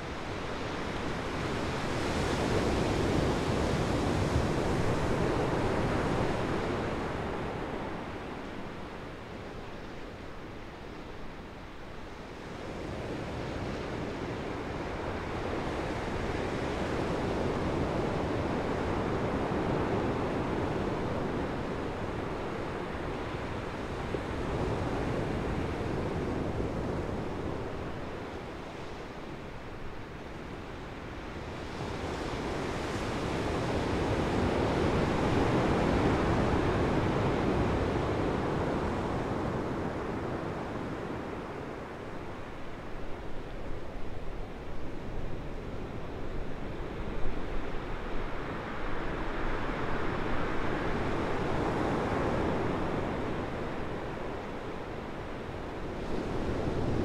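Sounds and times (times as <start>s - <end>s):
ocean surf breaking on beach: 12.6s - 57.0s.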